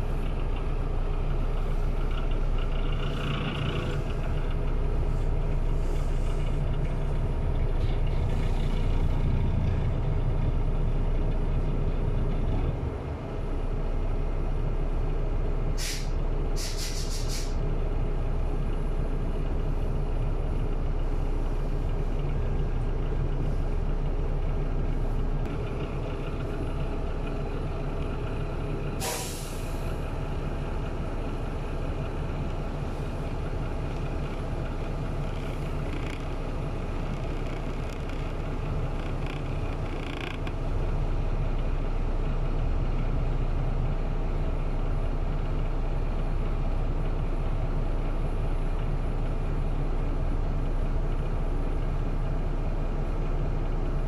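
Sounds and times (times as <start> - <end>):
bus engine running: 0.0 - 54.0
air brakes hissing: 15.8 - 17.6, 29.0 - 30.0.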